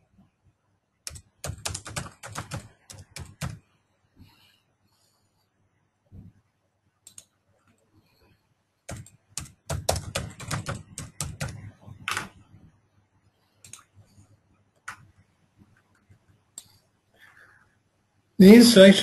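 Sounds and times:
typing on computer keyboard: 0:01.0 - 0:03.6, 0:08.9 - 0:12.3.

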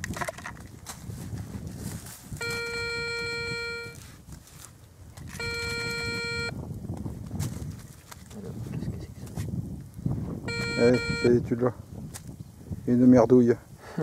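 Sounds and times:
hands scraping soil and leaves: 0:00.7 - 0:02.7, 0:03.9 - 0:06.0, 0:06.8 - 0:09.6
metal detector beep: 0:02.4 - 0:04.0, 0:05.3 - 0:06.6, 0:10.5 - 0:11.4.

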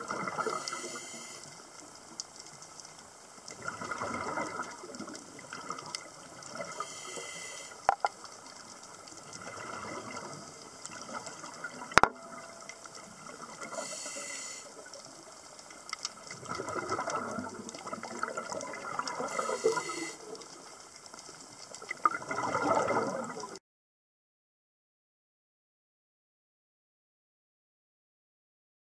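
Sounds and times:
bubbling exhaled air: 0:00.0 - 0:01.5, 0:03.5 - 0:08.2, 0:09.3 - 0:12.0, 0:16.3 - 0:20.5, 0:21.9 - 0:23.6
regulator hissing inhalations: 0:00.4 - 0:01.6, 0:06.7 - 0:08.0, 0:13.6 - 0:14.9, 0:19.2 - 0:20.4.

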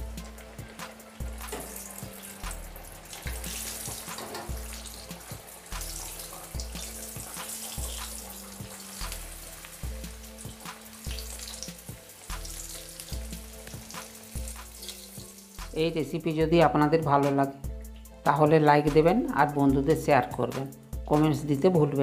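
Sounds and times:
oil sizzling with small pops: 0:00.0 - 0:16.1, 0:17.7 - 0:18.3.

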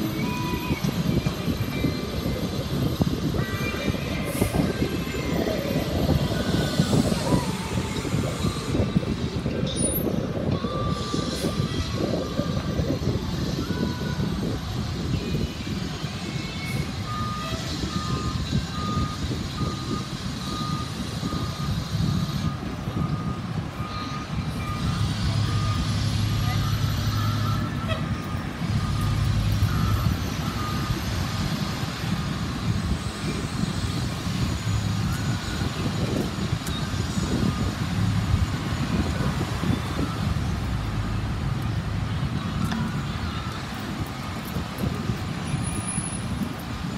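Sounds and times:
diesel engine rumble: 0:00.0 - 0:46.9
truck backup alarm beeping: 0:16.6 - 0:46.9.

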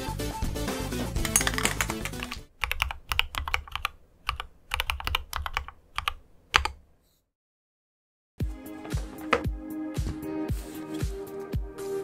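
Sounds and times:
background music: 0:00.0 - 0:02.6, 0:08.4 - 0:12.0
typing on a mechanical keyboard: 0:01.2 - 0:06.8.

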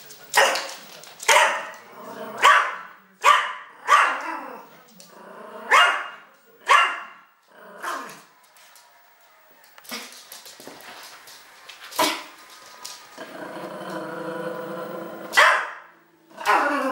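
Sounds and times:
dog barking: 0:01.3 - 0:01.7, 0:02.4 - 0:04.2, 0:05.7 - 0:07.2, 0:15.3 - 0:15.9.

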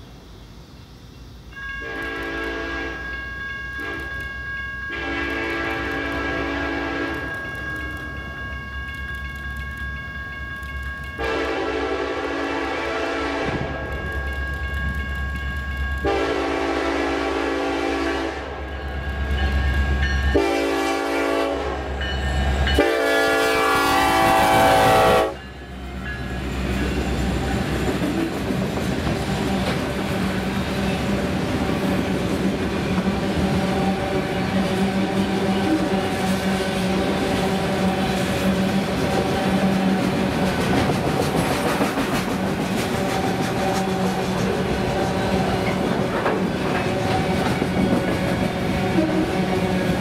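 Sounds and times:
locomotive air horn blasts: 0:01.6 - 0:03.1, 0:03.8 - 0:04.2, 0:04.9 - 0:07.4, 0:11.2 - 0:13.9, 0:16.0 - 0:18.6, 0:20.3 - 0:22.1, 0:22.7 - 0:25.4, 0:48.9 - 0:49.6
freight cars rumbling and clattering: 0:36.2 - 0:50.0.

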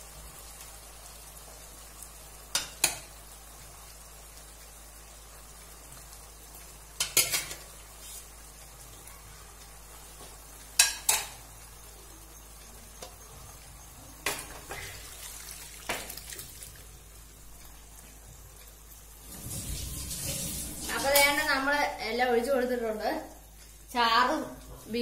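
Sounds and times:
low sizzle: 0:00.0 - 0:25.0
utensils clinking on plate and pan: 0:07.0 - 0:07.7, 0:10.8 - 0:11.4.

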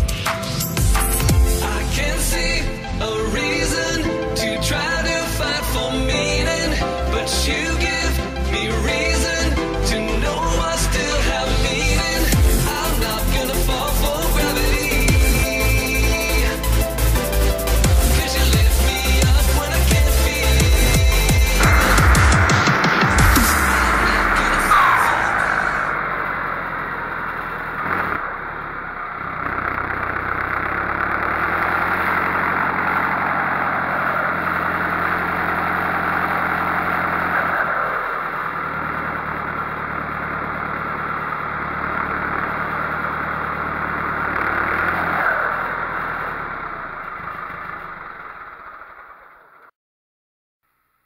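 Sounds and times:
tractor diesel engine running: 0:00.0 - 0:48.7.

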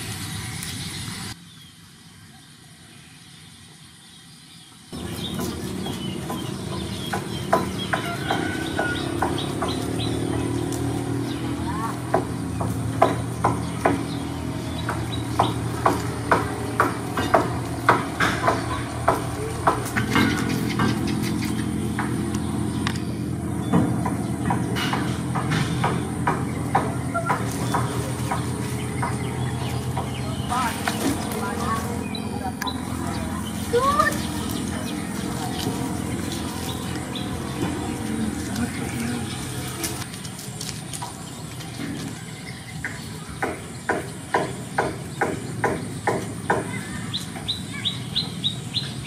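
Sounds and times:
low mechanical hum: 0:04.6 - 0:49.0
low rumble: 0:27.5 - 0:40.2.

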